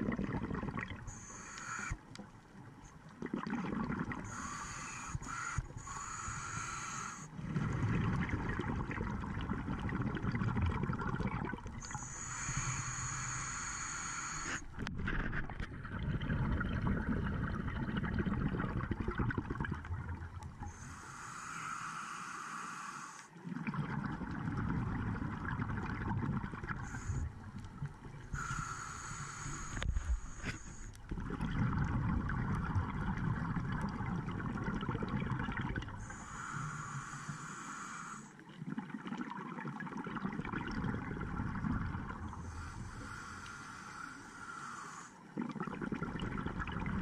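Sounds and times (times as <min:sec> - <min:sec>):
bubbling exhalation underwater: 0:00.0 - 0:01.1, 0:03.2 - 0:04.5, 0:07.4 - 0:12.0, 0:15.0 - 0:20.4, 0:23.4 - 0:27.2, 0:31.1 - 0:36.1, 0:38.6 - 0:42.5, 0:45.4 - 0:47.0
regulator inhalation hiss: 0:01.1 - 0:02.0, 0:04.2 - 0:07.4, 0:11.8 - 0:14.7, 0:20.7 - 0:23.3, 0:26.8 - 0:27.4, 0:28.3 - 0:31.0, 0:36.0 - 0:38.4, 0:42.4 - 0:45.3.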